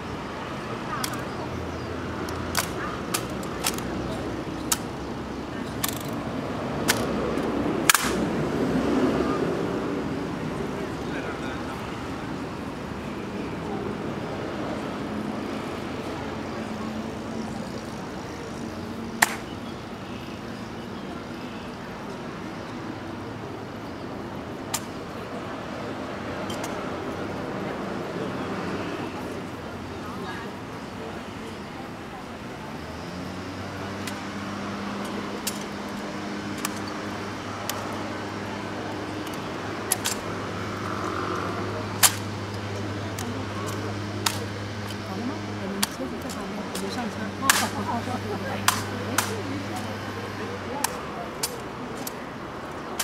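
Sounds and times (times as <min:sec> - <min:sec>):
outdoor crowd: 0:00.0 - 0:53.0
traffic hum: 0:00.0 - 0:53.0
rifle clicks and clacks: 0:01.0 - 0:01.2, 0:02.2 - 0:04.0, 0:05.8 - 0:06.2, 0:06.8 - 0:08.2, 0:35.0 - 0:36.9, 0:39.2 - 0:40.3, 0:41.3 - 0:45.0, 0:45.8 - 0:46.9, 0:48.6 - 0:49.4, 0:50.8 - 0:52.2.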